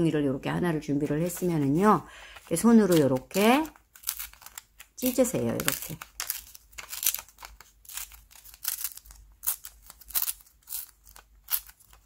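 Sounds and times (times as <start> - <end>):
paper tearing: 2.6 - 12.0.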